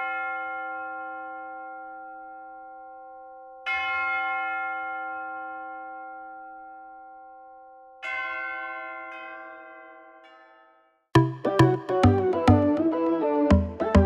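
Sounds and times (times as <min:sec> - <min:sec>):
church bell tolling: 0:00.0 - 0:10.7.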